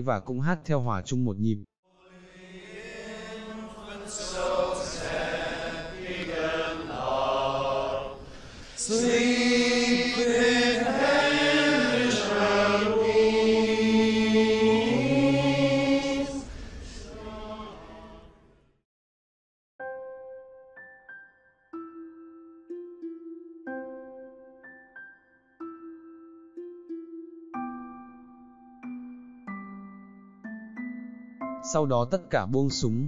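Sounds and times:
men singing a carol: 1.9s - 18.2s.

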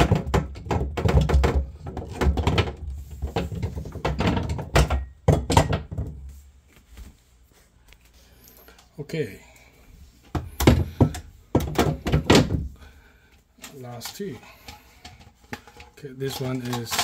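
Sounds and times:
plastic trays knocking and clattering: 0.0s - 6.3s, 10.3s - 12.9s, 13.9s - 17.0s.

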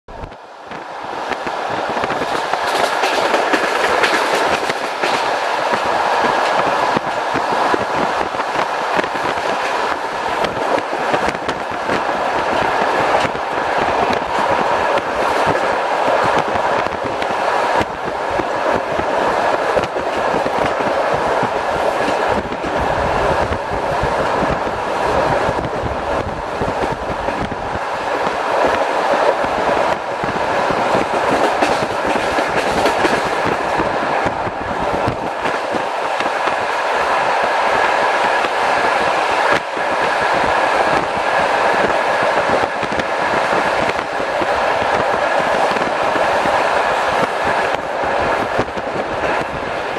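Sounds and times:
train wheels running on rails: 0.1s - 49.9s
wheels clacking over track: 1.2s - 22.8s, 26.6s - 36.7s.

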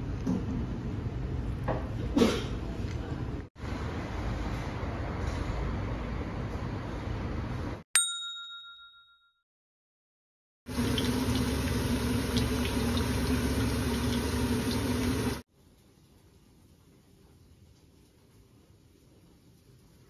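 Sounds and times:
bright ding: 8.0s - 9.4s
steady hum: 10.7s - 15.4s
noodles boiling in a pot: 10.7s - 16.2s.

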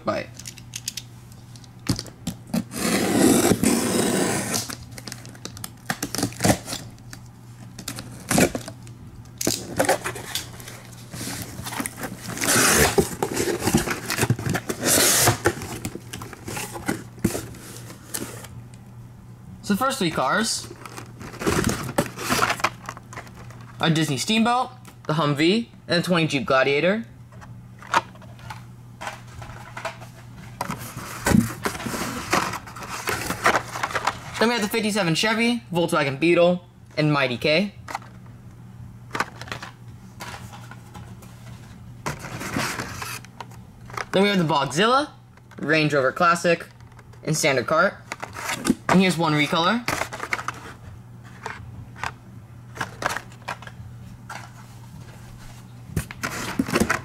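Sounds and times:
faint steady hum: 0.0s - 57.0s
plastic packaging rustling: 4.4s - 18.6s, 20.6s - 23.8s, 27.9s - 34.5s, 49.8s - 57.0s.

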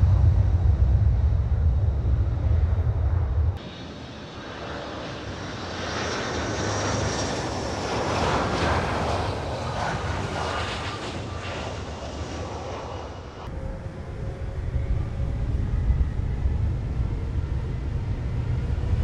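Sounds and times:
jet engines roaring overhead: 0.0s - 19.0s.

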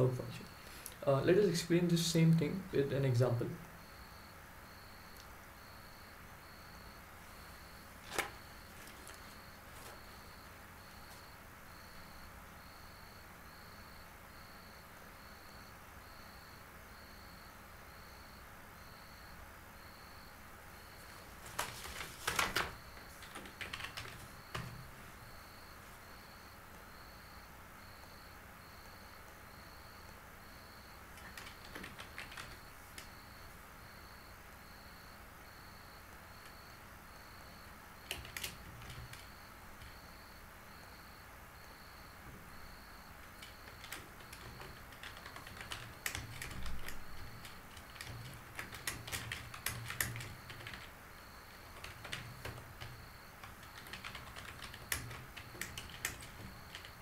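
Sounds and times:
computer keyboard typing: 8.0s - 11.2s, 21.0s - 24.9s, 31.2s - 33.2s, 38.0s - 40.0s, 43.2s - 57.0s.

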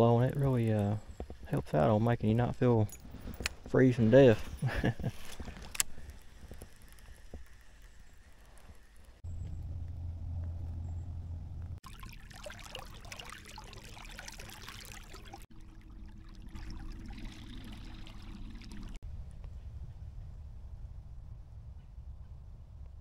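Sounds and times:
electric trolling motor hum: 5.3s - 11.8s, 13.3s - 19.0s
water churning along hull: 9.2s - 19.0s.

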